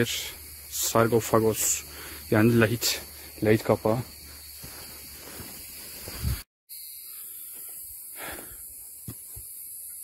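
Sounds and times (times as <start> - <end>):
steady high hiss: 0.0 - 4.0.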